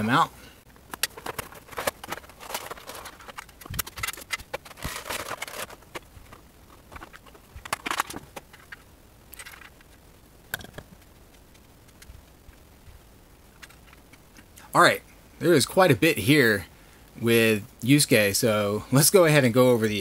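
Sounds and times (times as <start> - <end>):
plastic packaging crinkling: 0.9 - 10.0.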